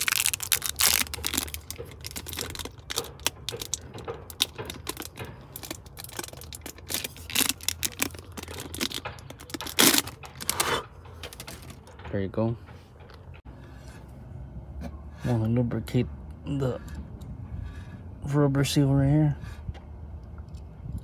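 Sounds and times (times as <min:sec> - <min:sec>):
plastic shrink wrap crinkling: 0:00.0 - 0:10.6.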